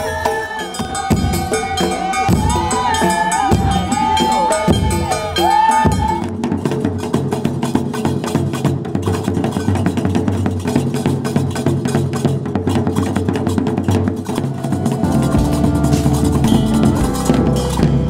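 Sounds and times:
large drums struck with sticks: 5.9 - 18.0.

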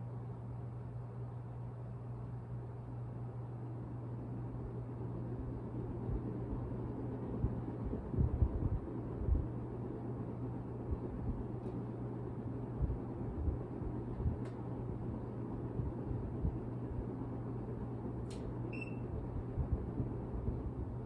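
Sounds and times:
ceiling fan humming: 0.0 - 21.0
click: 18.2 - 18.5.

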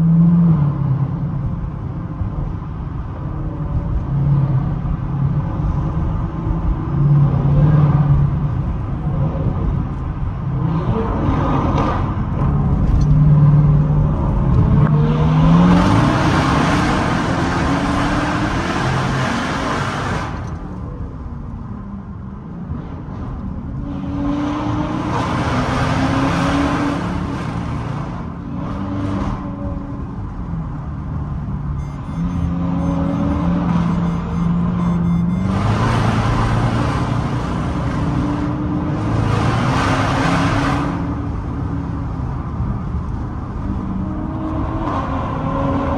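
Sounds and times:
road and wind noise: 0.0 - 45.9
car engine accelerating: 24.1 - 41.6.

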